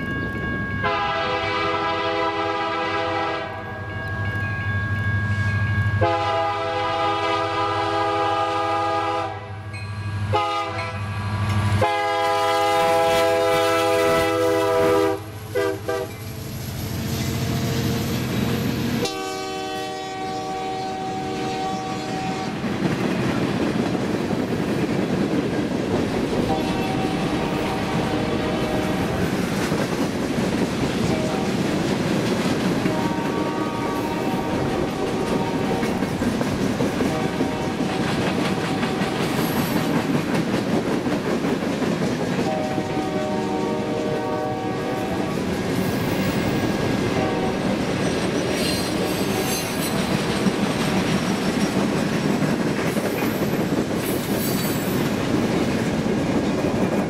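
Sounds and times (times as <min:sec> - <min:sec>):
low rumble of locomotive engines: 0:00.0 - 0:57.0
locomotive air horn blasts: 0:00.8 - 0:03.7, 0:06.0 - 0:09.6, 0:10.3 - 0:11.0, 0:11.8 - 0:16.2, 0:19.0 - 0:22.6, 0:26.4 - 0:29.2, 0:31.0 - 0:31.6, 0:32.8 - 0:36.0, 0:37.0 - 0:39.2, 0:42.4 - 0:45.4, 0:47.1 - 0:47.7
train wheels clacking over rail joints: 0:21.6 - 0:44.3, 0:45.2 - 0:57.0.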